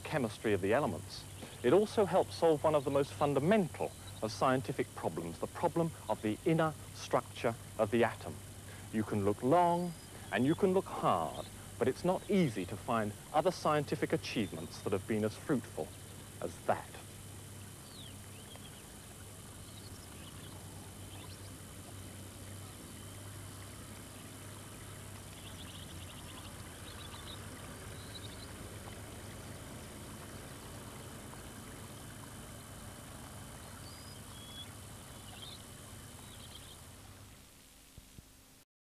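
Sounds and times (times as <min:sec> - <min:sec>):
low hum and hiss: 0:00.0 - 0:38.6
bird chirps: 0:09.6 - 0:12.7, 0:17.8 - 0:18.9, 0:19.6 - 0:21.6, 0:25.3 - 0:29.0, 0:33.6 - 0:36.8.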